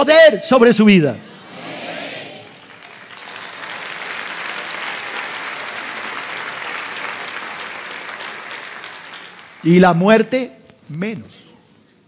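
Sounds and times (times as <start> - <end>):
crowd applauding: 1.5 - 10.3.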